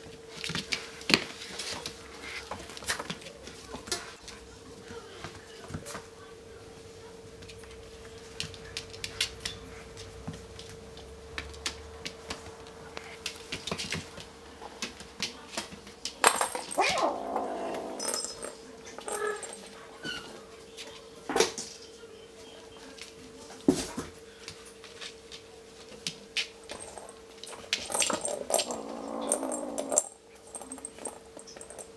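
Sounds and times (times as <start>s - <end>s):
ball and paws tapping on floor: 0.0s - 6.1s, 7.4s - 17.1s
kitten growling: 16.7s - 18.4s, 28.0s - 30.2s.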